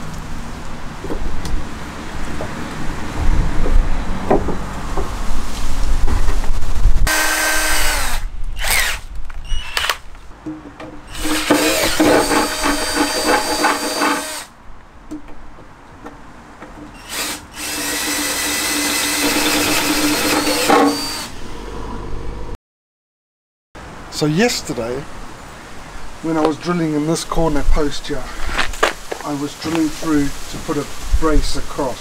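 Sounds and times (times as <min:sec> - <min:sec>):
cordless drill whining: 0:07.1 - 0:10.0, 0:11.1 - 0:14.5, 0:17.0 - 0:21.3.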